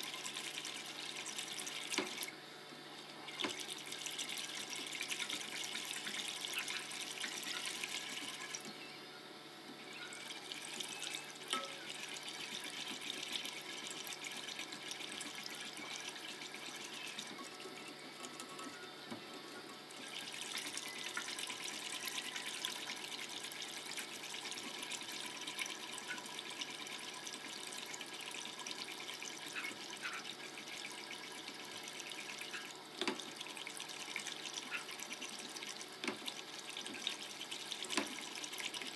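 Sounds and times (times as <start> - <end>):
whisk ticking against pot: 10.2 - 38.9.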